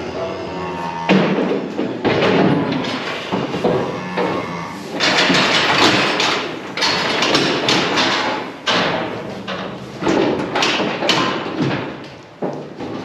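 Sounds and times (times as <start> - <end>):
steel cattle crush banging: 0.9 - 13.0.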